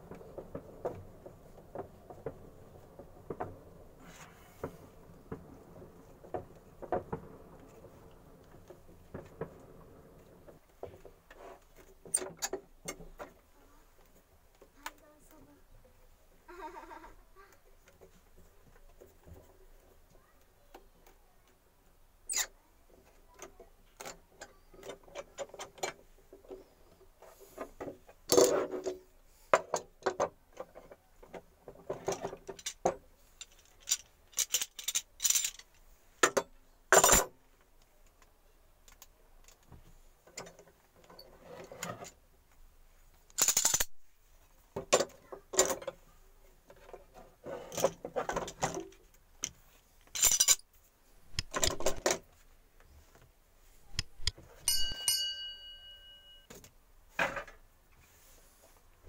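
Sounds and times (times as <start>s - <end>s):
wooden pieces clattering: 29.6s - 36.4s, 43.3s - 43.9s, 47.6s - 50.7s, 51.3s - 52.3s.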